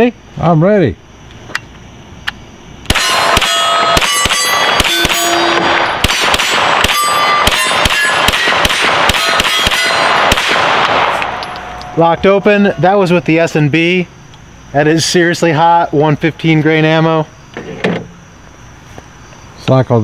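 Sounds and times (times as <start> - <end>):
steel targets clanging: 2.9 - 10.3
rapid pistol gunshots: 2.9 - 11.4.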